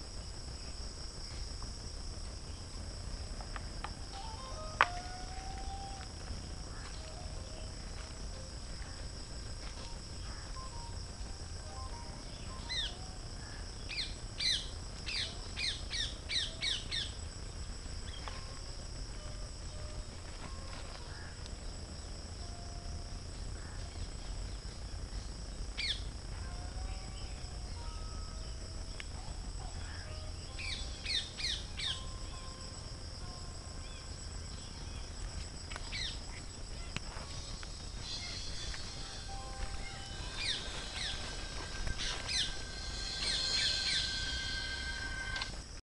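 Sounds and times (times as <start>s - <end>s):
high-pitched insect drone: 0.0s - 45.8s
birds calling: 34.6s - 45.5s.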